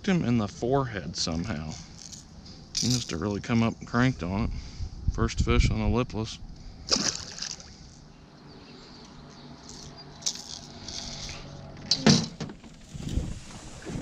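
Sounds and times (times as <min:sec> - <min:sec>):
fishing tackle clinking in metal boat: 0:01.7 - 0:03.5, 0:09.3 - 0:13.2.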